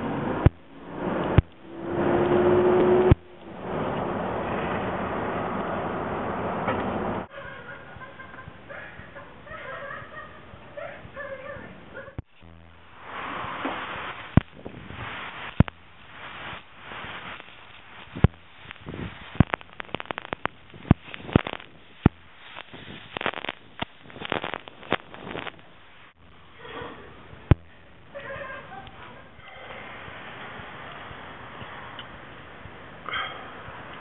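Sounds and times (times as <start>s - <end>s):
spray pops and crackles: 0.0s - 3.6s, 12.2s - 26.6s, 27.3s - 28.2s.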